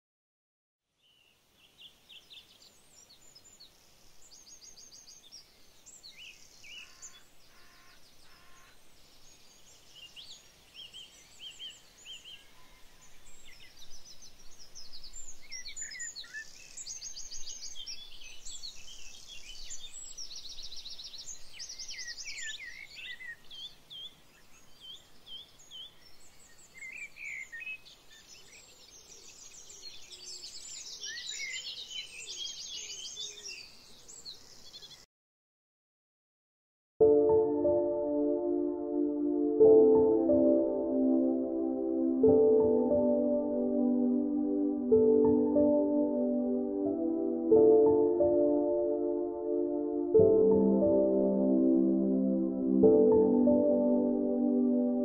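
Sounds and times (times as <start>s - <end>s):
faint background hiss: 1.0s - 35.0s
songbirds chirping and trilling: 1.0s - 35.1s.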